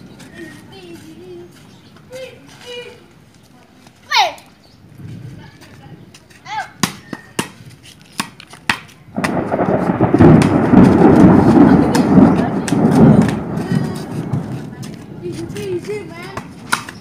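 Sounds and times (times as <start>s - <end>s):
child calling: 4.0s - 4.6s
ball being kicked: 6.8s - 7.6s
thunder rumble: 9.1s - 17.0s.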